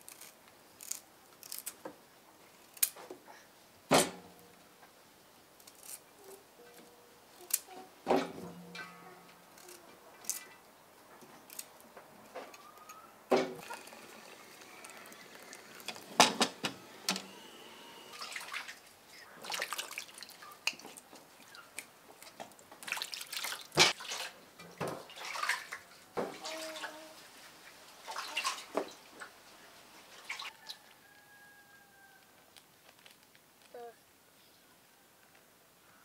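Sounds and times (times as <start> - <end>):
water splashing in metal basin: 18.1 - 20.9, 22.8 - 27.0, 28.0 - 29.4.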